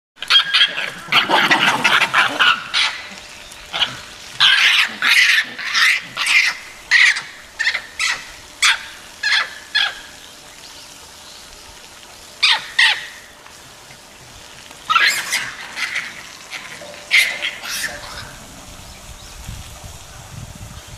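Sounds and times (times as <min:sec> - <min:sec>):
monkeys giving short high calls: 0:12.4 - 0:13.2, 0:14.9 - 0:18.4.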